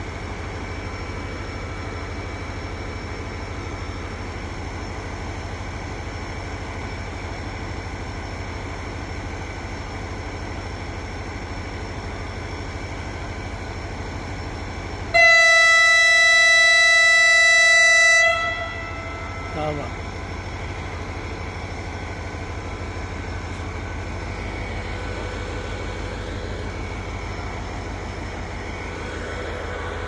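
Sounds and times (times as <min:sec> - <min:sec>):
diesel locomotive idling: 0:00.0 - 0:30.0
locomotive horn blast: 0:15.1 - 0:19.7.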